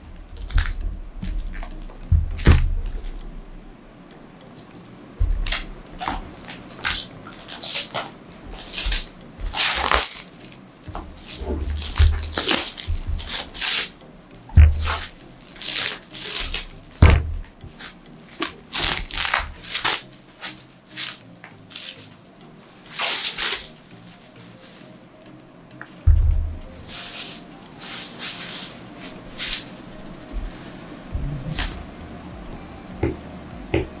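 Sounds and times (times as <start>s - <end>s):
dull thuds of box: 2.1s - 2.9s, 14.6s - 15.0s
plastic wrap crinkling: 5.4s - 14.0s, 14.8s - 16.7s, 17.8s - 22.1s.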